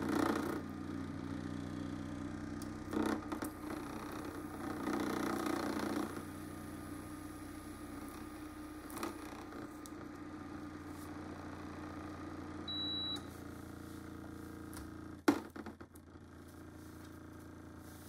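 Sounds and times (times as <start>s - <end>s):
engine low hum: 0.0s - 18.0s
short high beep: 12.7s - 13.3s.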